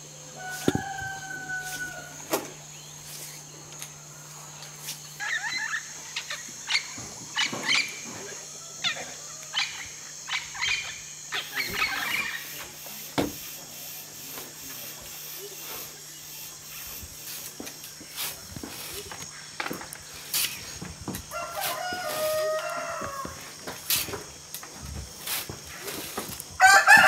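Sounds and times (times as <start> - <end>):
irregular chirping calls: 2.1 - 13.1.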